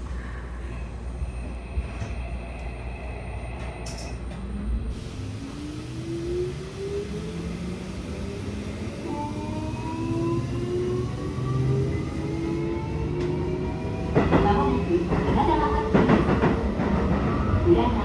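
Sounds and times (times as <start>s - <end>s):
train running rumble: 0.0s - 18.0s
train motor whine rising: 3.6s - 14.2s.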